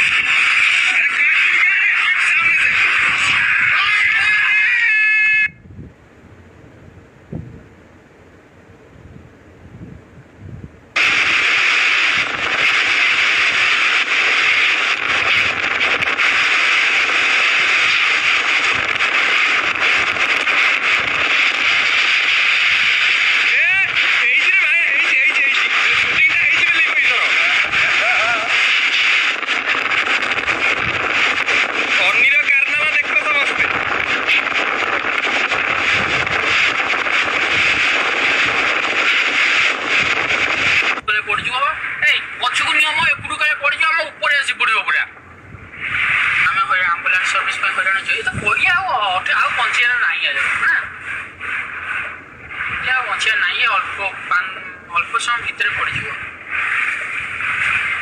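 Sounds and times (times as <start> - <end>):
wind and driving rain: 0.0 - 0.8, 10.9 - 43.2, 45.4 - 54.6, 55.3 - 58.0
heavy rain: 13.6 - 28.8.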